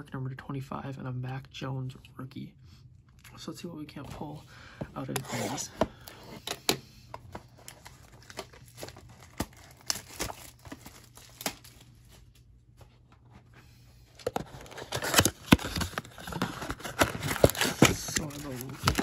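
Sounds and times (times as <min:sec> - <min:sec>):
cardboard box crinkling and clicks: 0:07.2 - 0:11.9, 0:14.2 - 0:19.0
cardboard tearing: 0:07.7 - 0:11.9, 0:14.2 - 0:19.0.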